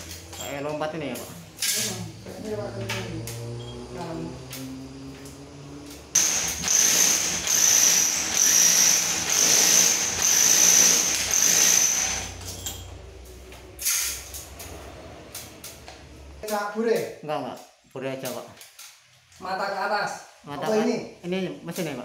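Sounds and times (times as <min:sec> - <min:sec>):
rotary hammer drilling into wall: 0:06.2 - 0:12.5.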